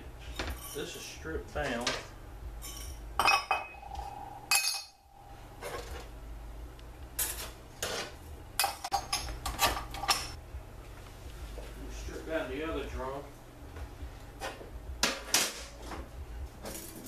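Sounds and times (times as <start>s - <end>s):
steel parts clinking on metal: 2.6s - 5.1s.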